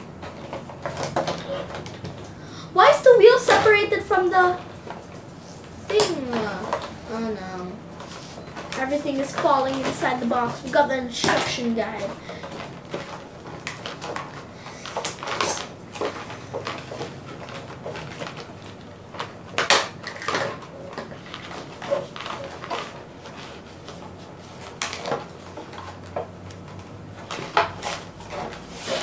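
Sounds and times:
plastic packaging crinkling: 6.0 - 29.0
plastic parts clicking and knocking: 8.5 - 29.0.

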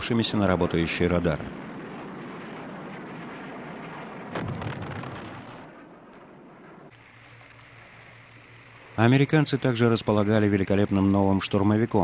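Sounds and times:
noisy rumble: 0.0 - 12.0
sudden loud blast: 4.3 - 5.7.

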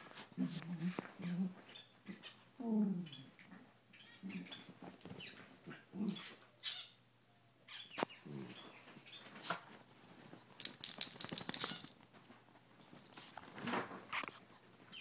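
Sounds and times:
sharp clicks: 10.6 - 12.0.

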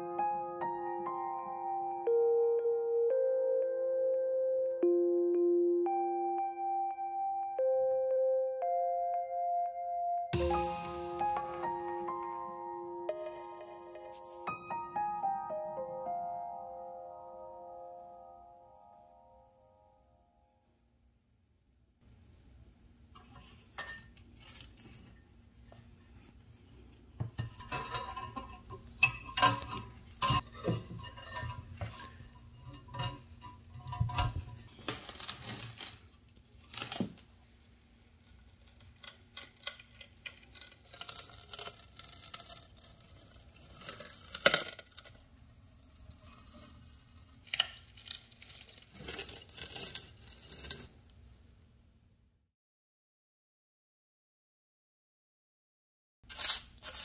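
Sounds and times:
metallic clanks and scrapes: 23.2 - 25.2, 27.3 - 35.9.

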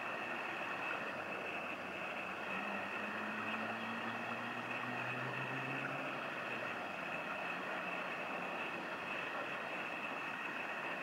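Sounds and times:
ship diesel engine drone: 0.0 - 11.0
steady rushing noise: 0.0 - 11.0.

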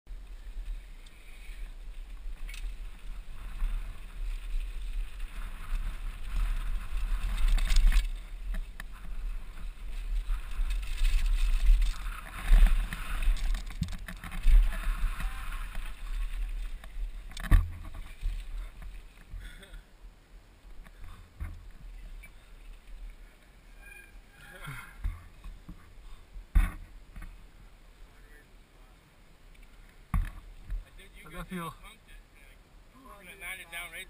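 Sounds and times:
bike knocking and rattling: 1.4 - 19.5, 25.0 - 27.4
tyres crunching over gravel: 2.1 - 19.4.

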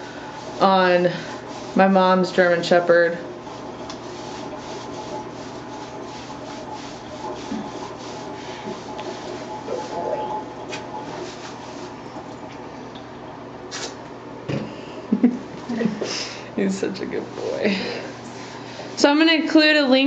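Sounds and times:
hands scrubbing wet fur: 0.0 - 12.6.

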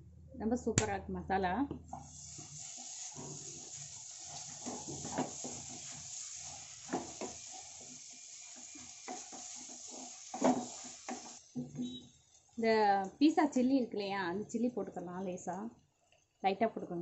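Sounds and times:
spatula scraping and knocking pan: 1.9 - 12.0
noodles sizzling in a pan: 1.9 - 13.3.

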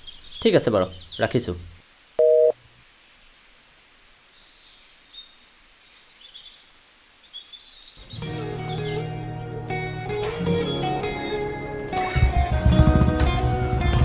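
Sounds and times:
birds chirping: 0.0 - 9.3
two-tone phone beep: 2.2 - 2.6
strummed string music: 8.0 - 14.0.

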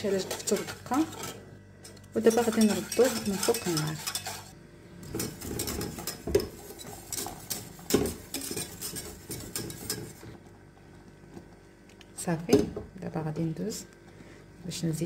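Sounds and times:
whisk scraping a metal saucepan: 0.0 - 10.4
whisk knocking on pan: 2.3 - 4.4, 5.1 - 10.2.

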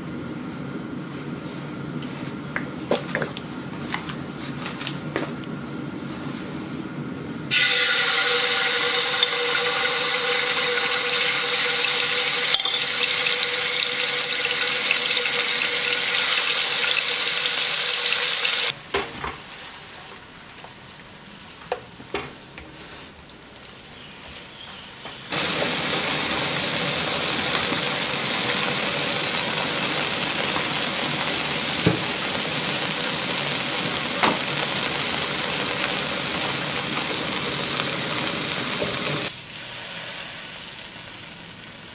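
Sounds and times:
meat sizzling in hot oil: 7.5 - 18.8, 25.3 - 41.9.

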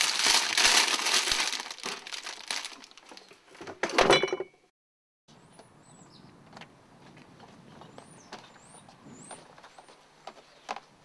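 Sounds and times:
plastic snack bag crinkling: 0.0 - 3.3.

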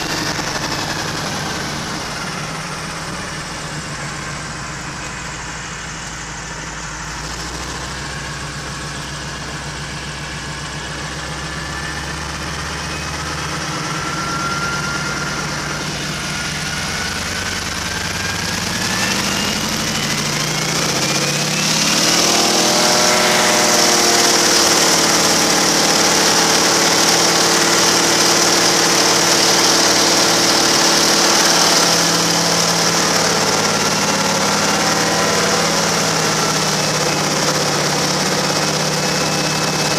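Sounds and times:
propeller plane engine: 0.0 - 39.9.

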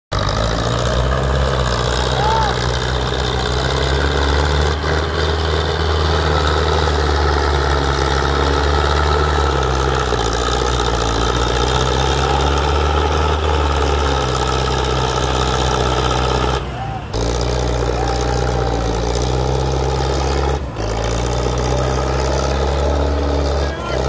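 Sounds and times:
tractor diesel engine drone: 0.1 - 24.0.

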